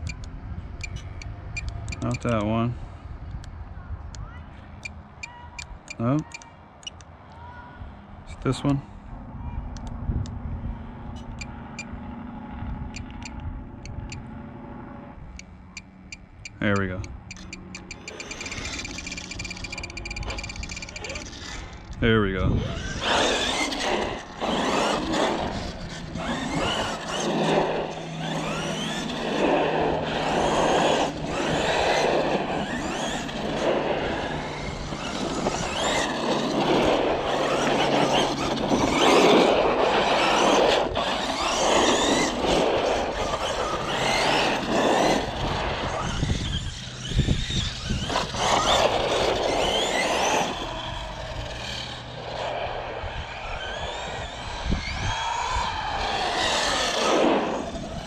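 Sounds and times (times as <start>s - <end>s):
rough rushing noise: 16.1s - 58.0s
electric motor whining: 17.1s - 58.0s.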